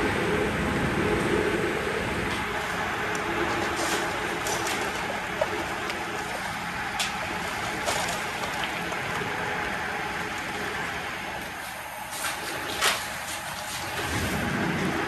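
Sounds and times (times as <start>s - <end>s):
excavator running: 0.0s - 15.0s
wood splintering and debris falling: 3.6s - 9.3s.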